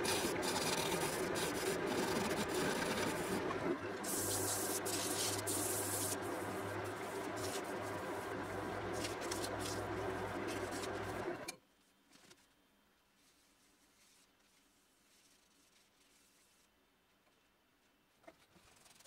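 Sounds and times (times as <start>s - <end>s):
lathe motor hum: 0.0s - 11.5s
sandpaper sanding hiss: 4.1s - 6.2s.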